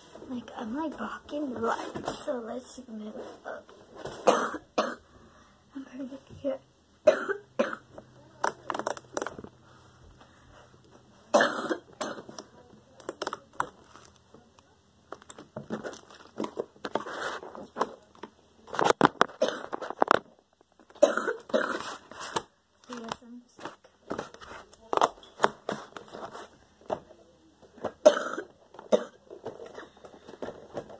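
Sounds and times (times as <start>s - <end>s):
person coughing: 4.2s - 5.1s, 7.1s - 7.8s, 21.0s - 21.9s, 28.0s - 29.2s.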